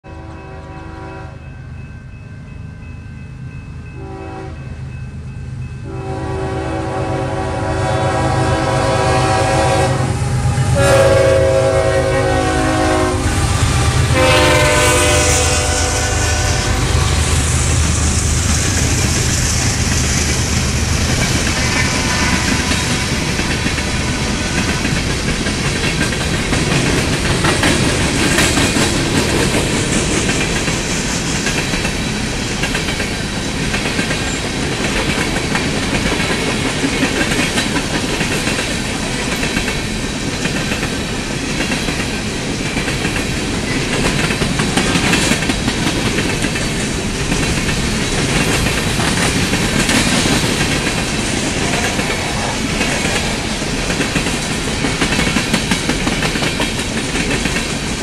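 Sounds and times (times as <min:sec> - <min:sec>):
train horn blasts: 0:00.0 - 0:01.6, 0:04.0 - 0:04.8, 0:05.8 - 0:17.7, 0:21.5 - 0:24.8
locomotive engine rumble: 0:08.1 - 0:28.2
train wheels clattering on rails: 0:09.9 - 0:58.0.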